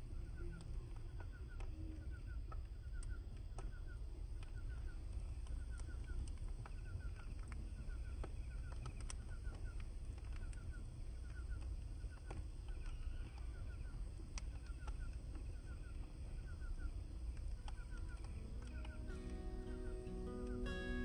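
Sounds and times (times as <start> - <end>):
steady low rumble: 0.0 - 21.0
faint clicks: 0.2 - 21.0
bird calling: 10.4 - 21.0.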